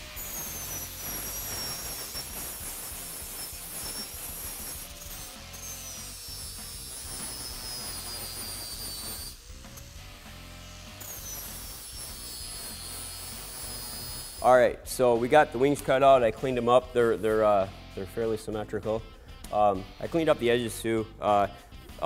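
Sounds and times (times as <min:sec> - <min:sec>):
angle grinder grinding steel: 0:00.0 - 0:14.6.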